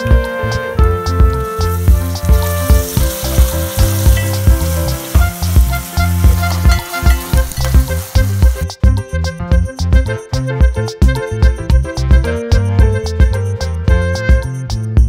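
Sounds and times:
background music with steady beat: 0.0 - 15.0
vegetables sizzling in hot oil: 1.1 - 8.7.

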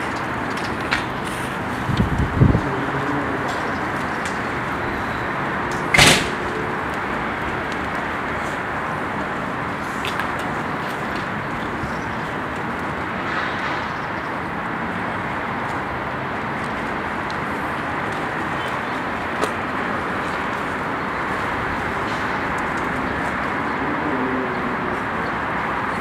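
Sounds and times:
street background noise: 0.0 - 26.0
loud sharp bang: 5.9 - 6.4.

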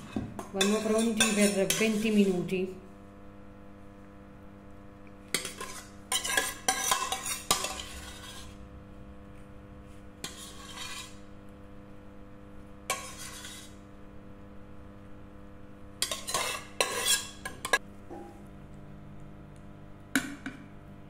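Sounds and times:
metal spoon scraping steel pot: 0.6 - 2.5, 5.3 - 8.6, 10.2 - 11.3, 12.9 - 13.8, 16.0 - 17.8.

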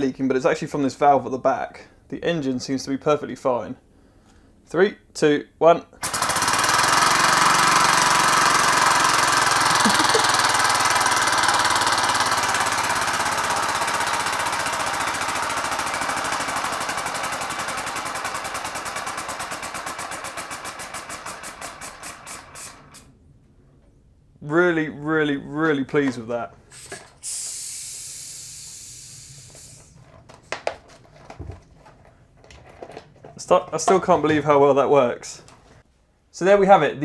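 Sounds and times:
air exhaust puffs: 19.4 - 23.2, 26.6 - 30.0
plastic clatter: 30.0 - 34.4.

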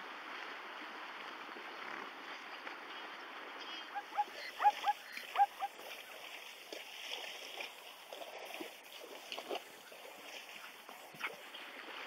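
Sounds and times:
water splashing: 0.0 - 12.0
zebra calls: 3.7 - 5.8.

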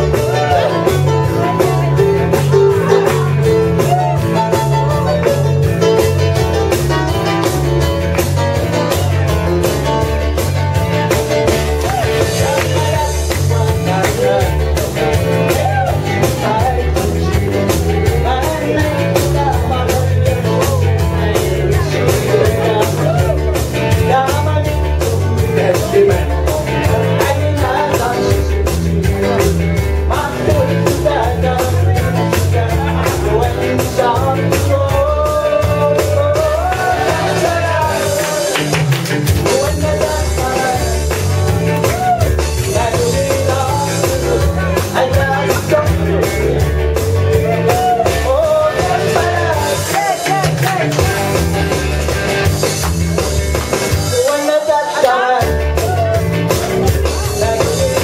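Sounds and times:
electronic keyboard dance music: 0.0 - 58.0
man singing into microphone: 11.9 - 38.7, 39.4 - 51.3, 54.0 - 58.0.

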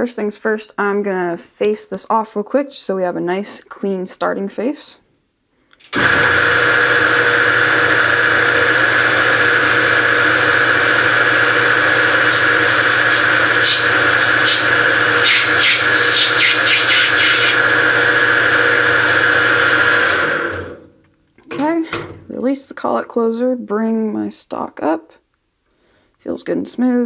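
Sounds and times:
lathe motor whine: 6.0 - 20.8.

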